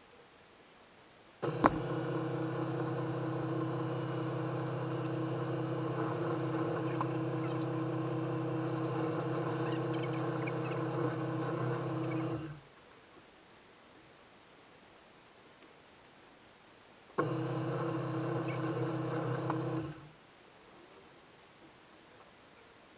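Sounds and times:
drill bit boring into wood: 0:01.4 - 0:12.6, 0:17.2 - 0:20.0
drill press motor humming: 0:01.4 - 0:12.6, 0:17.2 - 0:20.1.

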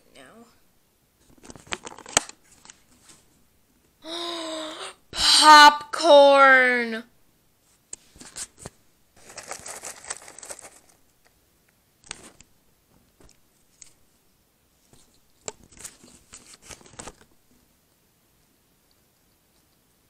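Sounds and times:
paper bag crinkling: 0:09.2 - 0:11.3.

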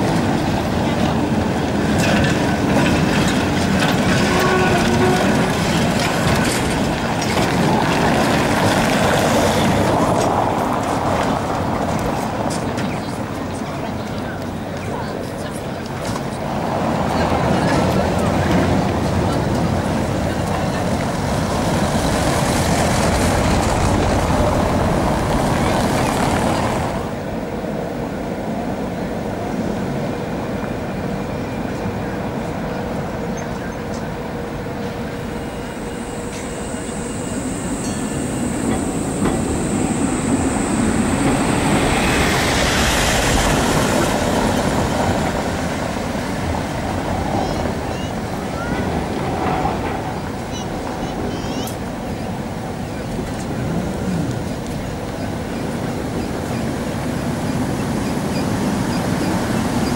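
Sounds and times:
city street traffic rumble: 0:00.0 - 0:59.9
tram wheels clattering over rails: 0:00.0 - 0:59.9.

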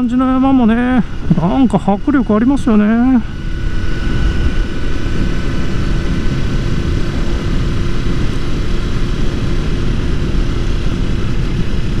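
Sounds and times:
motorcycle engine cruising: 0:00.0 - 0:12.0
wind rumble on microphone: 0:00.0 - 0:12.0.

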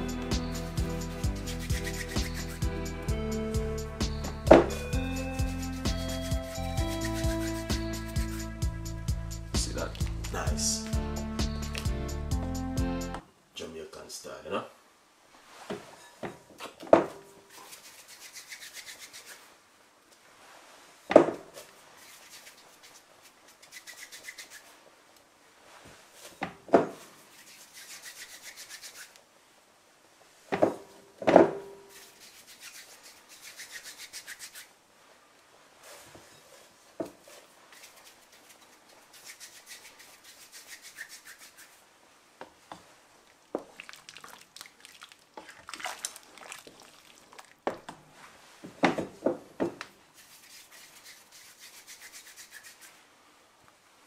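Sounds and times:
rapid scraping strokes: 0:00.0 - 0:03.0, 0:04.0 - 0:10.5, 0:17.5 - 0:19.5, 0:21.8 - 0:24.8, 0:27.2 - 0:29.2, 0:31.9 - 0:34.7, 0:37.2 - 0:41.8, 0:50.2 - 0:53.0.

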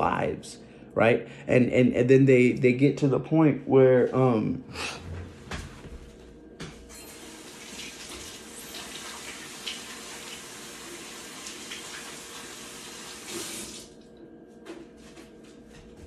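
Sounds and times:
tap water running into sink: 0:07.1 - 0:14.0.

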